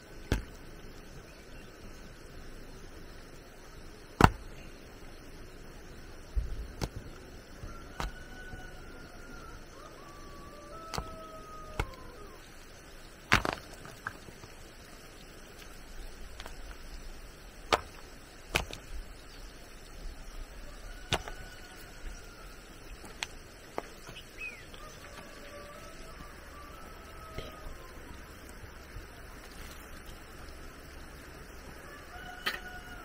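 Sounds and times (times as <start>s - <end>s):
hand tool chopping: 4.2s - 4.4s.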